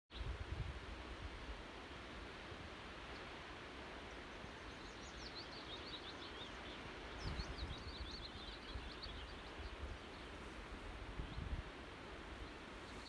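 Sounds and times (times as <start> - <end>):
songbird twittering: 4.0 - 10.5
wind buffeting microphone: 7.1 - 11.8.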